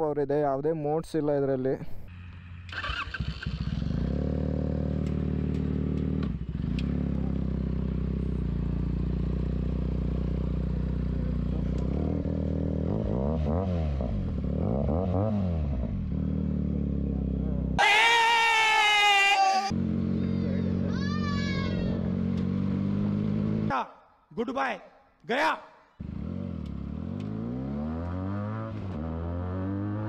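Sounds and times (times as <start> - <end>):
motorcycle engine idling: 2.1 - 12.8, 19.8 - 22.2
engine revving: 2.1 - 17.8, 19.6 - 23.7, 26.0 - 30.0
motorcycle starter cranking: 2.6 - 4.0.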